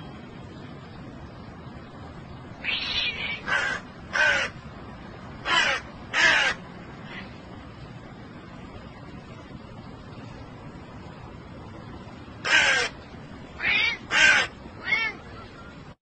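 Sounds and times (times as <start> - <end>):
crow cawing: 2.6 - 4.6, 5.4 - 7.3, 12.4 - 13.0, 13.6 - 15.2.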